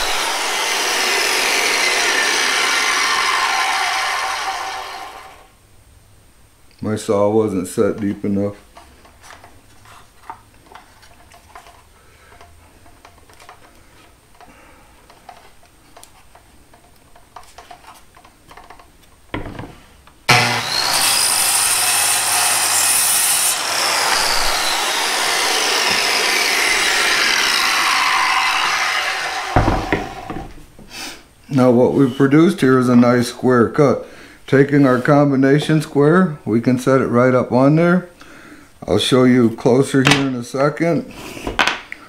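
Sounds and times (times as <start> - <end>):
circular saw cutting wood: 0.0 - 5.5, 20.3 - 30.4
saw blade winding down: 0.0 - 5.5, 20.3 - 30.3.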